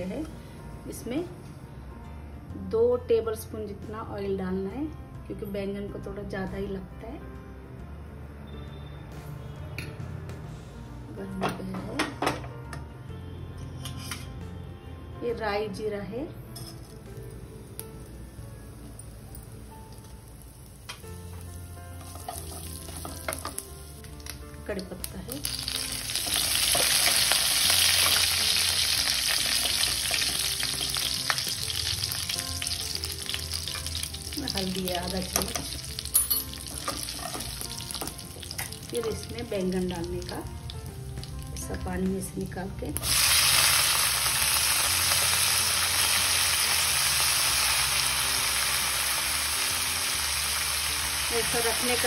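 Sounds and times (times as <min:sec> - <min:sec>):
spices sizzling in hot oil: 0:16.6 - 0:52.0.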